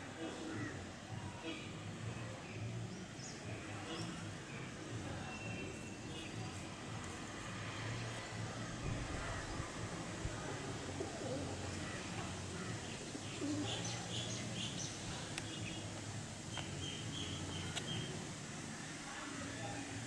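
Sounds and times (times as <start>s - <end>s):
birds chirping: 10.8s - 18.2s.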